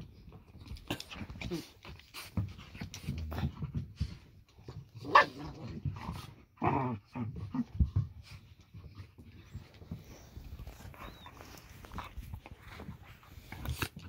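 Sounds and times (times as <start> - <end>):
dogs growling while play-fighting: 0.7 - 8.2.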